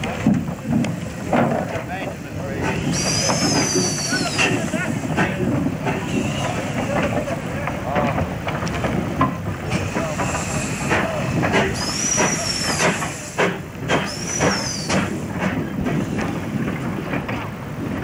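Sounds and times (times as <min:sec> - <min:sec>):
locomotive exhaust beats: 0:00.0 - 0:18.0
steam hissing: 0:02.6 - 0:07.5, 0:09.6 - 0:16.2
high squeals: 0:02.8 - 0:04.6.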